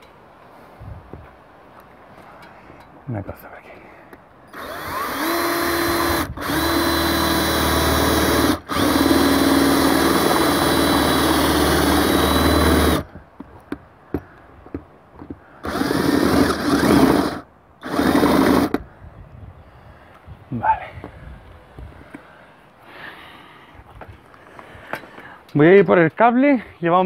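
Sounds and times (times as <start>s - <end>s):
cordless drill whining: 4.5s - 13.2s, 15.6s - 18.9s.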